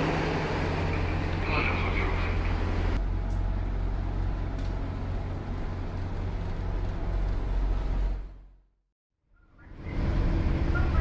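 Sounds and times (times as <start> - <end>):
diesel railcar engine idling: 0.0 - 8.4.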